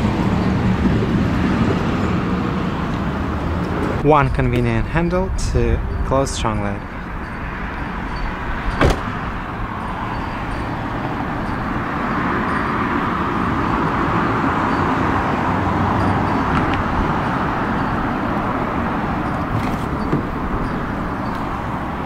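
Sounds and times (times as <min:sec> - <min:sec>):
outdoor traffic noise: 0:00.0 - 0:22.0
car trunk lid thump: 0:08.8 - 0:09.2.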